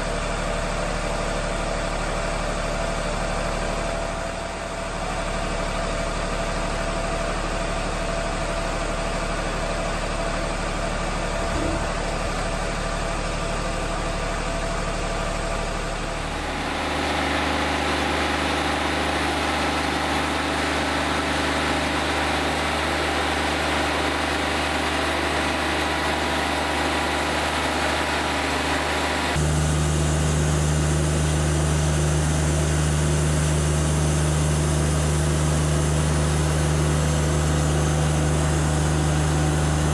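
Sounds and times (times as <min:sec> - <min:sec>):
bandsaw mill cutting log: 0:11.5 - 0:12.9, 0:16.2 - 0:39.9.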